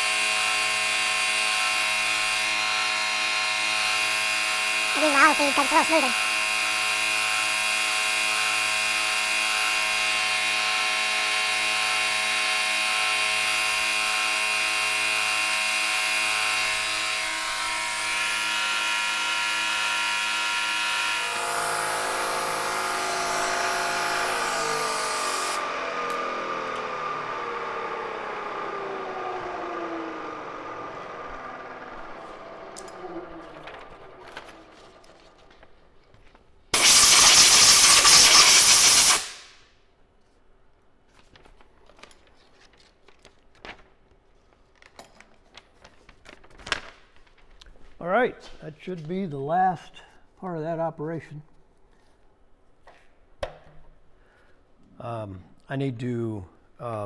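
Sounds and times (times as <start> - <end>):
milling machine whining: 0.0 - 35.3
spindle winding down: 0.0 - 35.6
hiss: 36.8 - 39.6.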